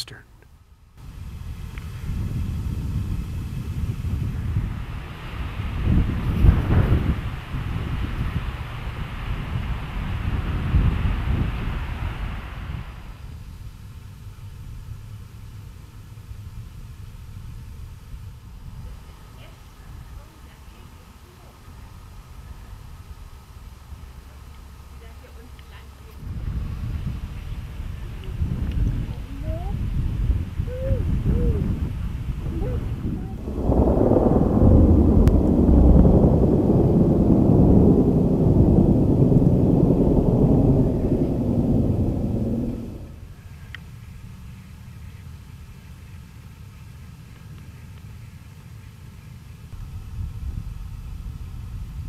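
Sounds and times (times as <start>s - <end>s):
wind buffeting microphone: 1.0s - 45.8s, 49.7s - 52.0s
thunder rumbling: 1.2s - 13.3s, 26.2s - 43.6s.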